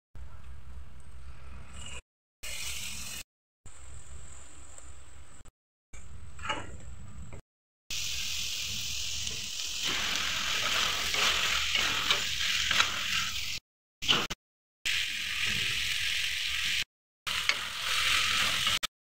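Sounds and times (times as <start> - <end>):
oil sizzling in a pan: 2.4 - 5.0, 7.9 - 14.3, 14.9 - 18.9
spatula scraping and stirring: 9.9 - 13.4.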